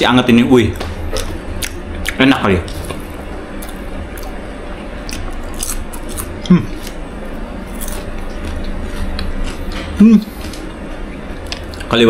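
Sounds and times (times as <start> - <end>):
person humming mm: 6.4 - 6.8.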